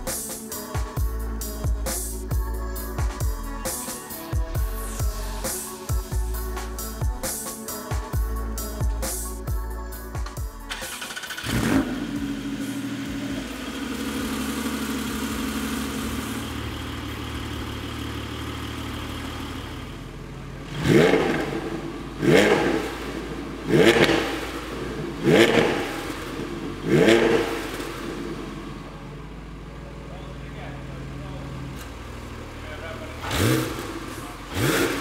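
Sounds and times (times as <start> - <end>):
car engine starting and idling: 0.0 - 35.0
engine revving: 10.7 - 28.8, 30.7 - 35.0.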